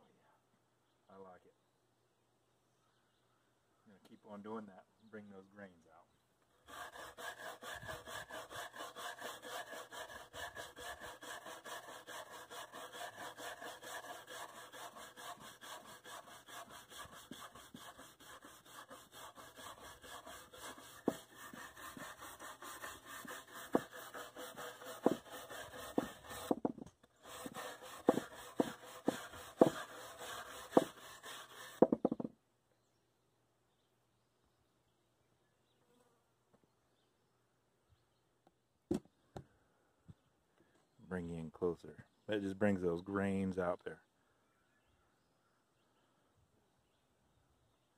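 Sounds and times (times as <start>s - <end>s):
wire brush scrubbing wood: 6.6s - 32.2s
sharp knocks: 28.0s - 29.8s, 31.8s - 32.4s.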